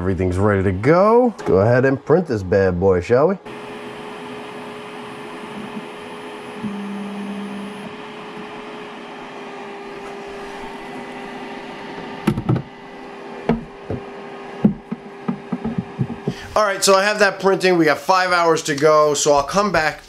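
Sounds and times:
resin printer humming: 3.4s - 16.6s
printer tone: 3.5s - 16.4s
plastic lid knocking: 13.5s - 16.4s.

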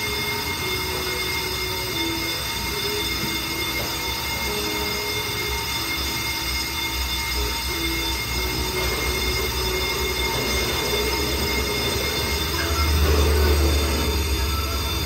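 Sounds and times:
lathe cutting metal whine: 0.0s - 15.0s
low motor hum: 7.3s - 15.0s.

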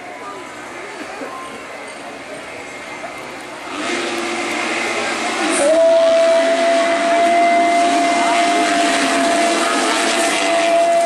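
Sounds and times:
high engine note: 3.7s - 11.0s
motocross engines revving hard: 3.7s - 11.0s.

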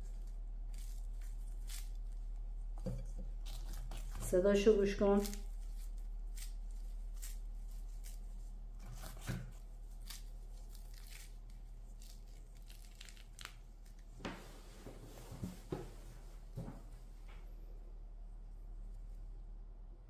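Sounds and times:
cookie crackling and crunching: 0.0s - 14.2s.

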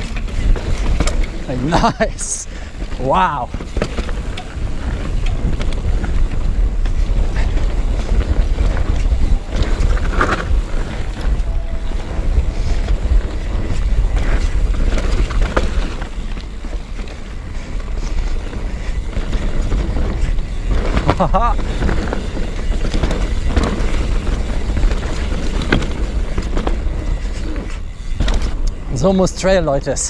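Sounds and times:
bike knocking and rattling: 0.0s - 30.0s
tyres on gravel trail: 0.0s - 30.0s
wind buffeting microphone: 0.0s - 30.0s.

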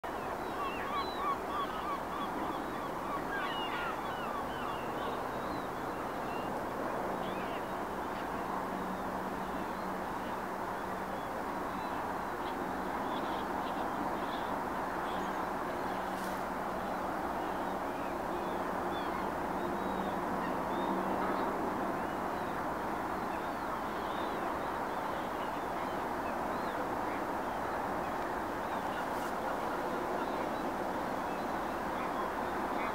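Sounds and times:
gulls calling: 0.1s - 6.5s.

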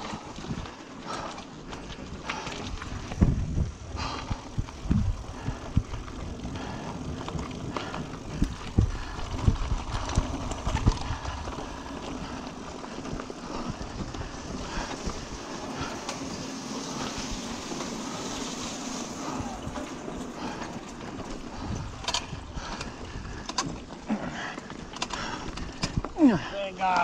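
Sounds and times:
bike rattling and knocking: 0.0s - 27.0s
bike tyres on gravel: 0.0s - 27.0s.

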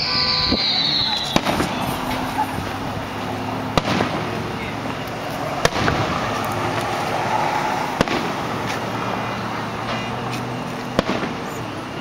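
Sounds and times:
fireworks shells bursting: 0.0s - 7.2s
steady background noise: 0.0s - 12.0s
faint fireworks pops: 0.4s - 2.8s, 3.7s - 7.1s, 7.9s - 9.0s, 9.8s - 11.7s.

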